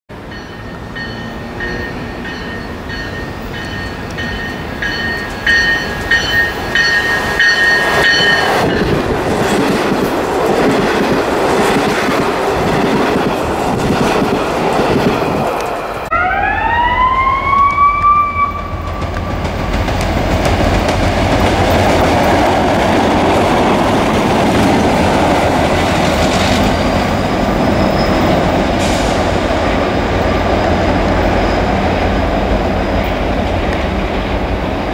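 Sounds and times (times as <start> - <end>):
train cars rumbling: 0.1 - 16.1, 16.8 - 34.9
diesel locomotives rumbling past: 0.1 - 34.9
electric train whining tones: 14.9 - 34.7.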